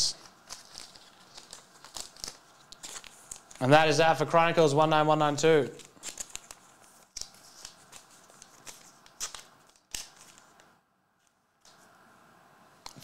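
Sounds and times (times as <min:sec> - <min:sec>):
trading cards rustling and clicking: 0:00.0 - 0:03.6, 0:05.7 - 0:11.9.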